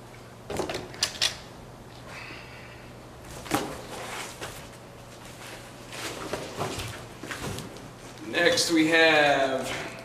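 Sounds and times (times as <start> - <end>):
steady low hum: 0.0 - 10.0
cardboard and plastic wrap rustling: 3.3 - 8.2.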